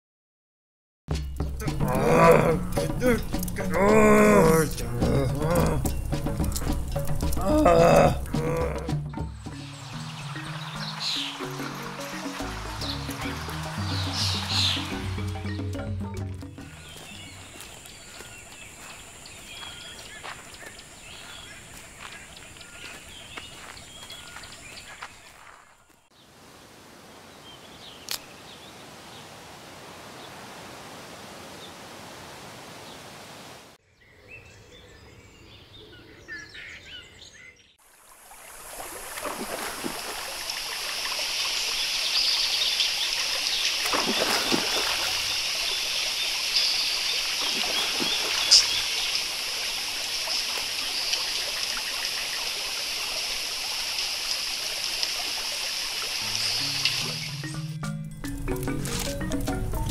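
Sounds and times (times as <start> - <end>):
birds chirping: 1.2 - 37.8, 39.3 - 58.0
running stream: 1.4 - 33.8, 37.8 - 57.7
heavy water splashes: 9.6 - 15.4, 37.8 - 57.3.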